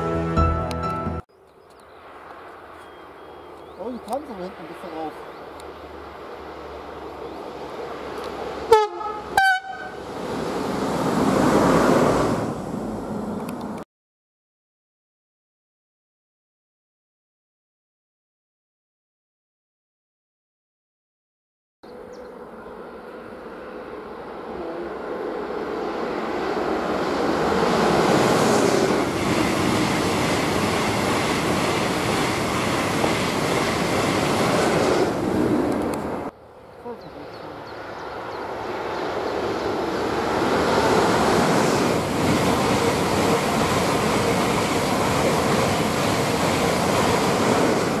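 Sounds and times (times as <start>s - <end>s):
locomotive passing on rails: 1.5s - 13.8s, 21.9s - 48.0s
locomotive horn blasts: 8.7s - 10.1s.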